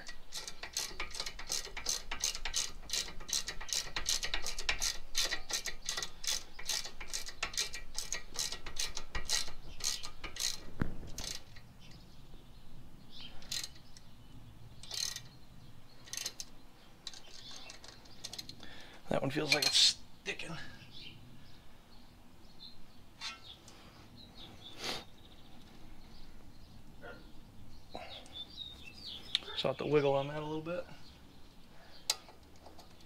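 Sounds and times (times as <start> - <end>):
ratchet wrench clicking: 0.0 - 11.6, 13.4 - 13.9, 14.8 - 15.4, 16.0 - 18.6.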